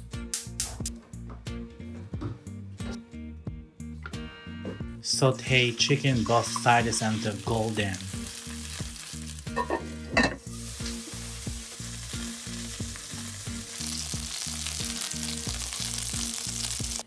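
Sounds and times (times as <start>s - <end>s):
chicken sizzling in oil: 5.4s - 17.0s.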